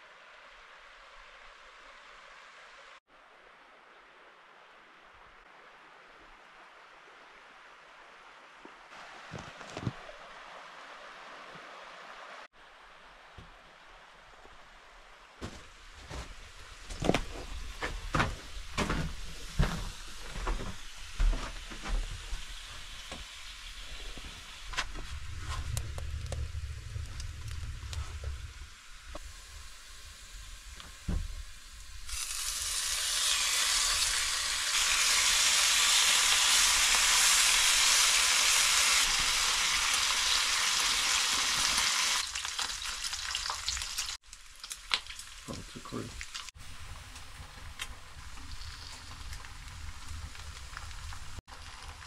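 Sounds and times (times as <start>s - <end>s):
bacon sizzling in a frying pan: 21.9s - 24.8s, 28.5s - 52.0s.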